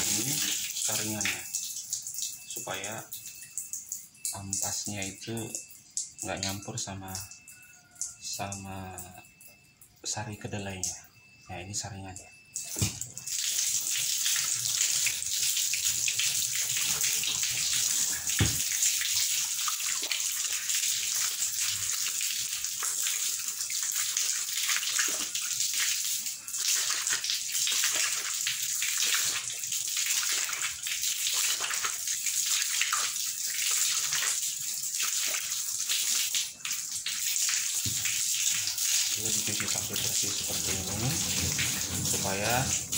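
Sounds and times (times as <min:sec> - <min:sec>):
water splashing from a hose: 0:00.0 - 0:03.6, 0:12.6 - 0:42.9.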